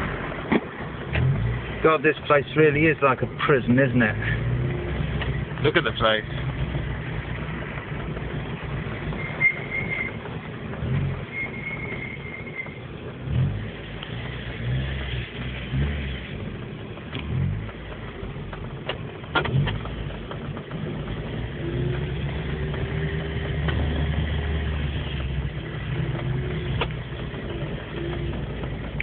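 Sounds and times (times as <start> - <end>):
car engine running: 0.0 - 29.0
sharp clicks or knocks: 17.1 - 20.8.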